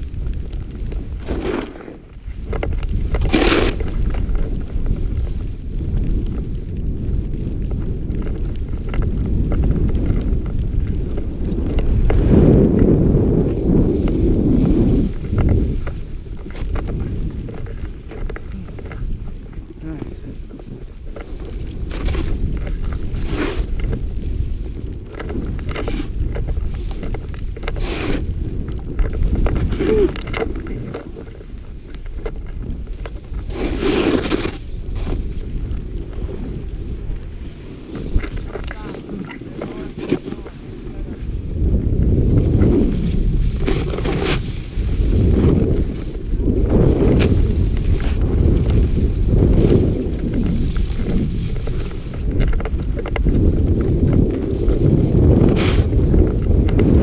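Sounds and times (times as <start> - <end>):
snowboard sliding on snow: 0.0 - 57.0
wind rushing over microphone: 0.0 - 57.0.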